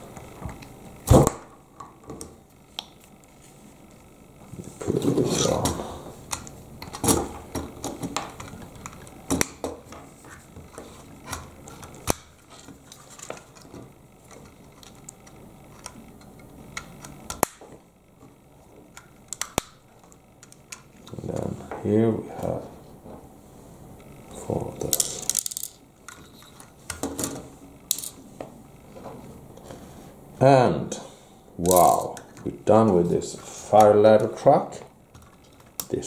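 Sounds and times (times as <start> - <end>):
plastic toy parts clicking: 24.9 - 26.2.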